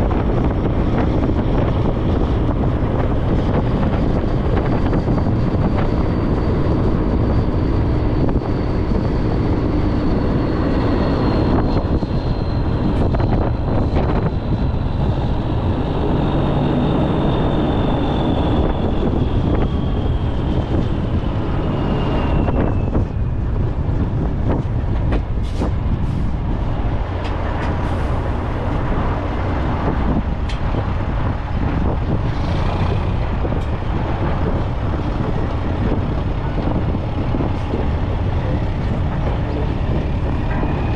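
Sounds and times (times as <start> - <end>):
tow truck engine and road rumble: 0.0 - 40.9
high whine falling in pitch: 2.2 - 23.6.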